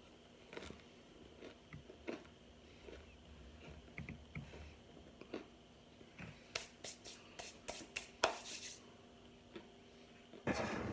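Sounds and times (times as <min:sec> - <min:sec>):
quiet chewing: 0:00.4 - 0:05.5
hands rubbing together: 0:06.5 - 0:08.8.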